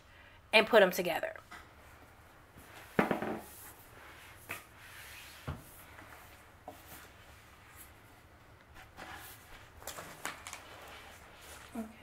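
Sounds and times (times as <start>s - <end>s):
board knocking and scraping: 3.0s - 3.5s.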